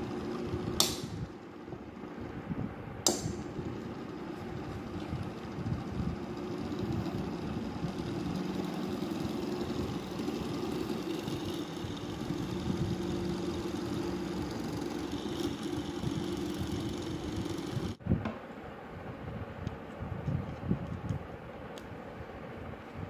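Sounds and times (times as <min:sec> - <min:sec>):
electric motor humming: 0:00.0 - 0:02.4, 0:03.1 - 0:18.0.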